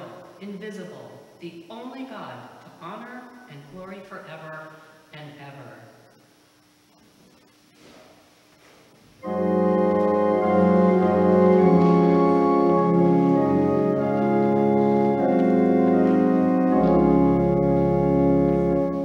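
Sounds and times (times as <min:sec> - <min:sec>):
church organ chords: 0:09.2 - 0:19.0
deep bass pedal note: 0:09.2 - 0:19.0.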